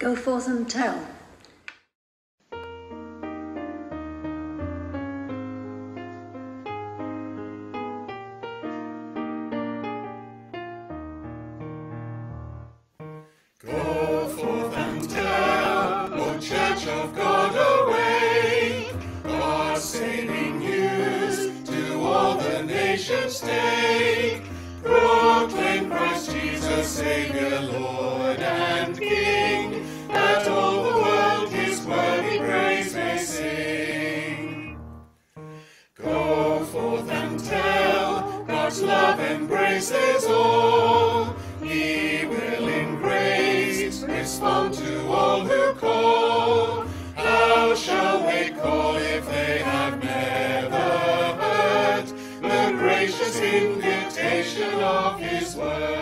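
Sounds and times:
choir singing a hymn: 13.6s - 34.8s, 36.0s - 56.0s.

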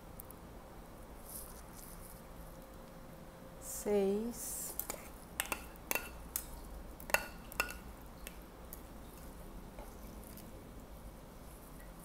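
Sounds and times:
scoop clinking against bowl: 4.8s - 6.5s, 7.1s - 7.9s.

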